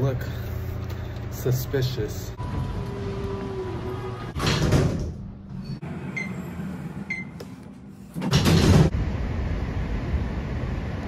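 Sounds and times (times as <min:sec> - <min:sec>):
elevator doors sliding: 0:02.4 - 0:08.9.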